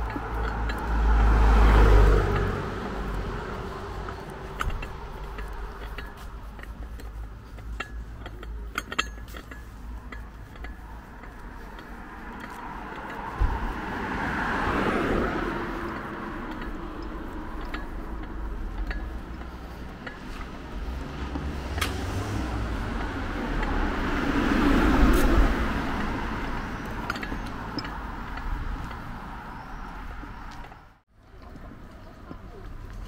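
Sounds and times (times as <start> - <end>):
car passing: 0.0 - 33.0.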